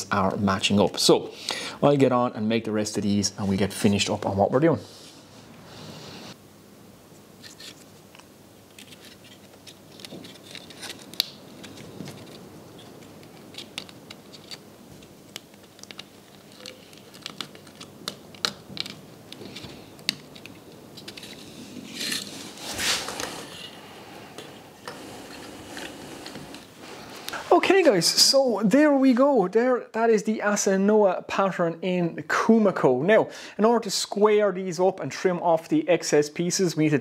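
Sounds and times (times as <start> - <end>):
wooden pieces clicking and tapping: 10.0 - 21.3
scraping rustle: 18.8 - 27.3.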